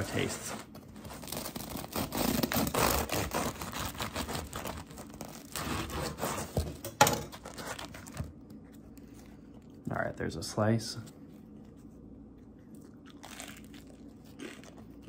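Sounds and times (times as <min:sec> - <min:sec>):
knife sawing through crusty bread: 0:01.0 - 0:06.6.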